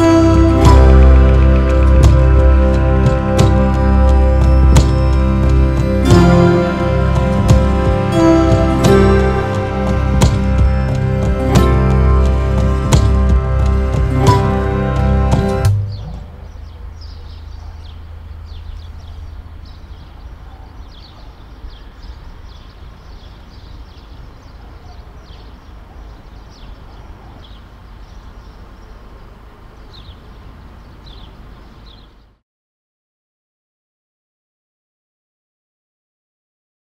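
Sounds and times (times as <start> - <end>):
music: 0.0 - 16.5
steady low rumble: 0.0 - 24.3
high falling bird chirps: 0.0 - 32.4.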